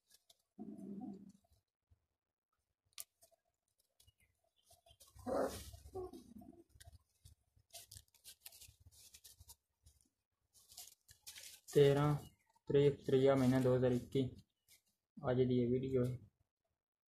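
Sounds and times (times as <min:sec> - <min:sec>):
straw rustling and crackling: 0:00.0 - 0:01.6, 0:02.8 - 0:15.0
puppy whining: 0:05.2 - 0:06.4.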